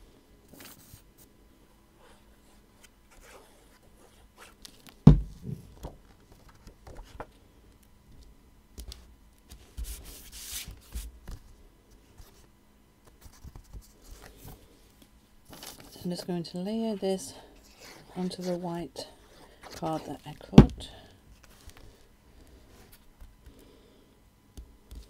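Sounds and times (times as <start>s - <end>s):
card stock rubbing and rustling: 8.9s - 12.5s, 15.5s - 16.0s, 17.6s - 18.6s.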